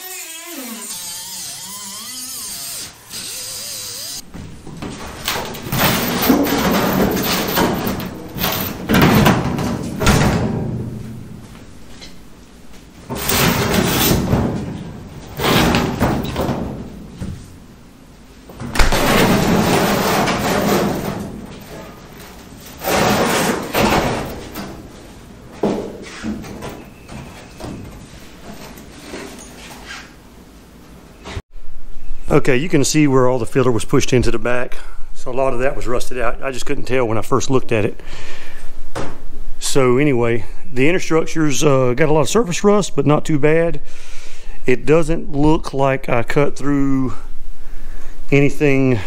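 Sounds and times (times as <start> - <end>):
pneumatic cutoff wheel whining: 0.0 - 4.3
sheet metal creaking and banging: 2.6 - 12.2, 13.0 - 17.5, 18.5 - 29.2.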